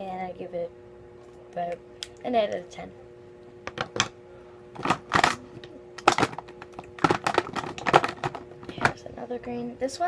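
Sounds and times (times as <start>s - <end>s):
plastic markers clattering: 6.0s - 9.0s.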